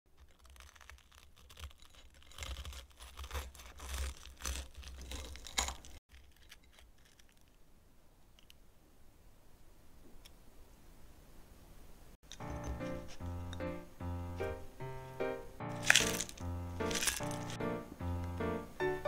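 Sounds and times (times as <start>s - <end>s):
knife crunching through fried crust: 0.1s - 7.5s, 15.7s - 17.7s.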